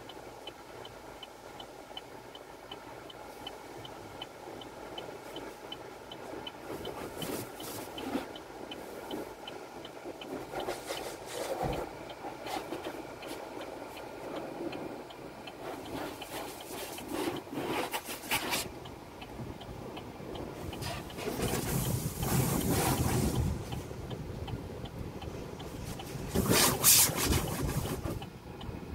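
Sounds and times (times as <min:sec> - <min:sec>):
cloth brushes slapping car body: 0:06.4 - 0:09.3, 0:10.2 - 0:18.8, 0:20.7 - 0:23.8, 0:25.6 - 0:28.3
water spray: 0:20.8 - 0:23.5, 0:25.8 - 0:28.2.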